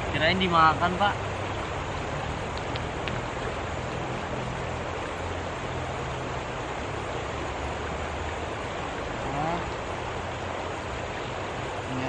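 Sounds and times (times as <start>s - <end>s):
water rushing: 0.0s - 12.0s.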